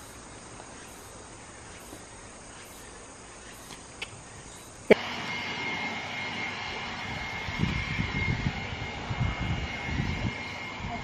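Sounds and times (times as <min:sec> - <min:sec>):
high-pitched insect chirping: 0:00.0 - 0:05.0
steady noise with high tone: 0:00.0 - 0:11.0.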